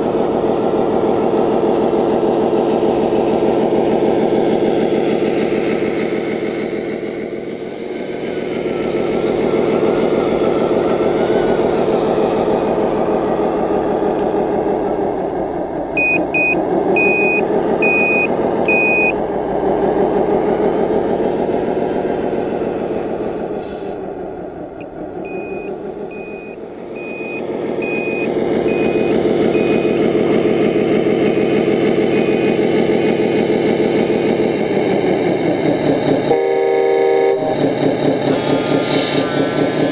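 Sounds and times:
simulated diesel engine: 0.0s - 39.9s
reversing beeps: 16.0s - 19.2s, 25.2s - 34.4s.

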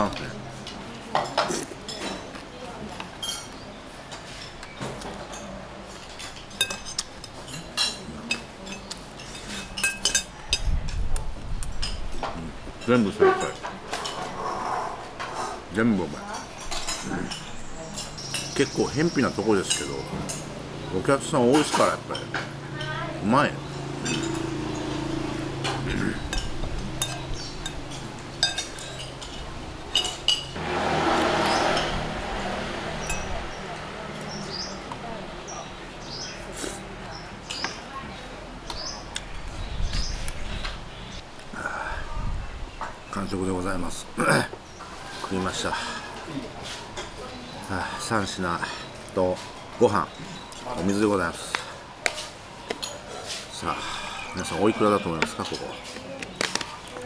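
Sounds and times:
cutlery clinking on plate: 3.1s - 10.7s, 25.6s - 30.6s
loud rushing noise: 30.6s - 34.0s.

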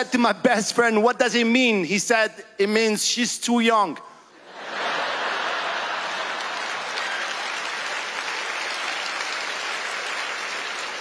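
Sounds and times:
audience laughing and applauding: 4.4s - 11.0s.

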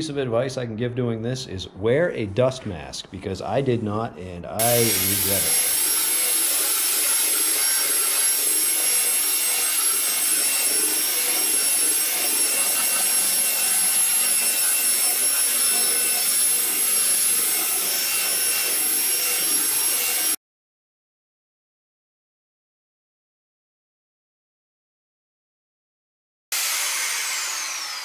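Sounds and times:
sanding belt hissing on wood: 4.6s - 18.8s
belt sander whine: 4.6s - 20.4s, 26.5s - 28.0s.

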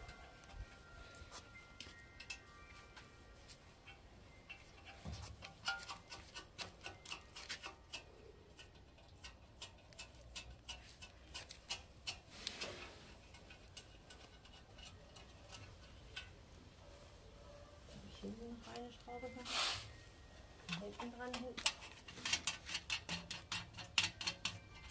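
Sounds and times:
plastic parts clicking and tapping: 3.9s - 16.4s, 20.7s - 24.9s.

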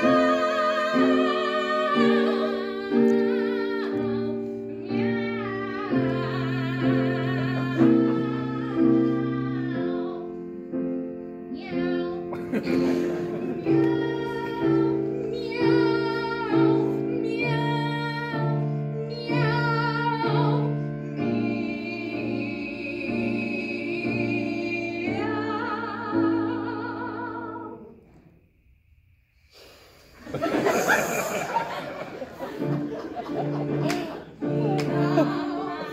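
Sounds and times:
women singing operatic duet: 0.0s - 10.4s, 13.4s - 27.9s, 34.4s - 35.9s
piano accompaniment: 0.0s - 28.1s, 30.6s - 35.9s
laughter: 12.3s - 13.7s, 30.2s - 35.9s.

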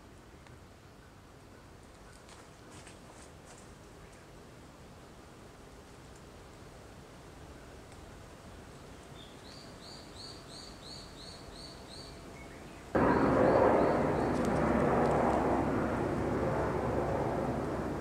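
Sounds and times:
woodland ambience: 0.0s - 18.0s
loud rushing noise: 13.0s - 18.0s.

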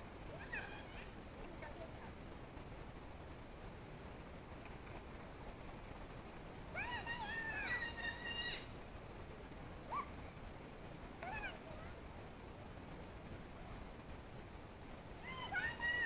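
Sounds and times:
faint hiss: 0.0s - 16.0s
distant high-pitched voice calling: 0.3s - 1.2s, 6.7s - 8.8s, 15.2s - 16.0s.

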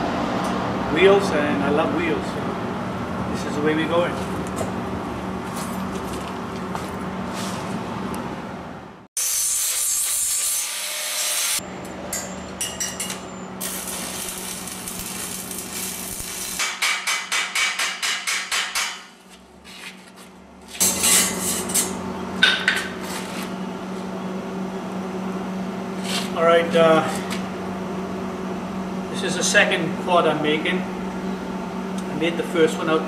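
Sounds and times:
low hum: 11.6s - 16.6s.

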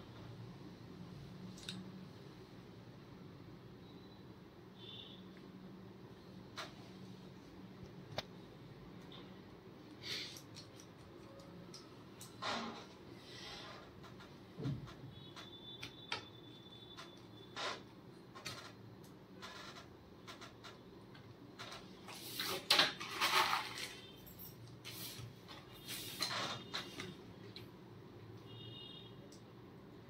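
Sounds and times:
small parts clattering: 22.6s - 24.7s.

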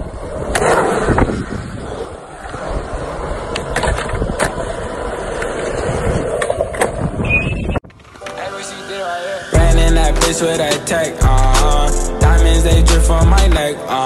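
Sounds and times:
skateboard wheels rolling on concrete: 0.0s - 12.0s
skateboard clicks: 3.5s - 7.0s.

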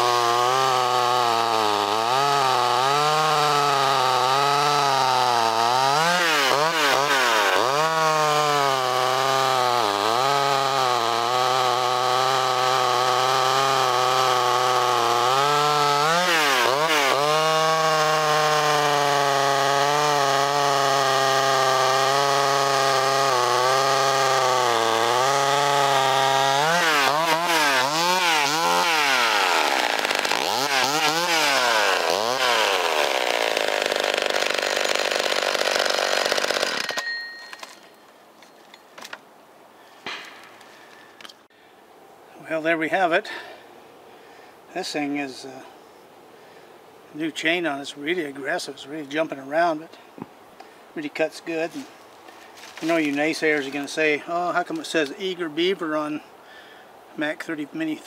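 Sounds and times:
chainsaw cutting log: 0.0s - 37.9s, 40.0s - 41.4s, 43.0s - 43.6s, 51.0s - 55.8s.

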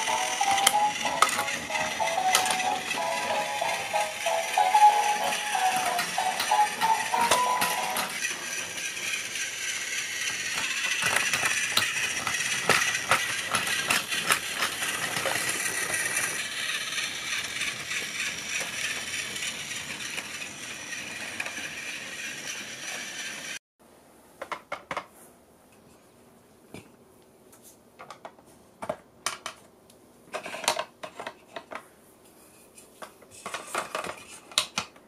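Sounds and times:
toy train motors whirring: 0.0s - 23.6s, 33.3s - 34.8s.

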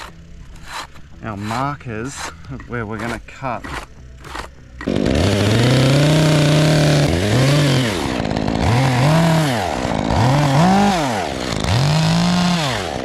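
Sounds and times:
chainsaw revving: 3.7s - 13.0s.

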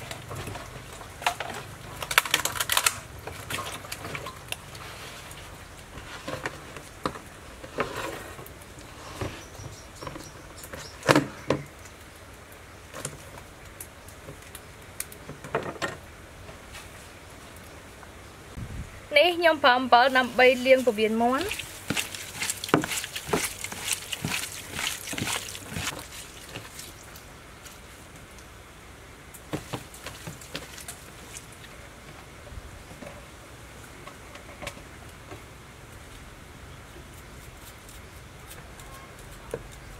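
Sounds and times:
hands handling food in plastic bowls: 20.5s - 28.3s, 29.4s - 32.3s.

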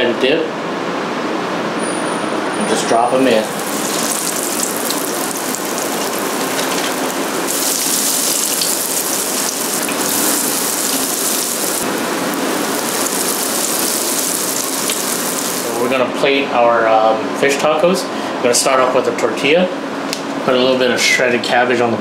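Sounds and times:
fish deep-frying in hot oil: 3.4s - 15.8s.

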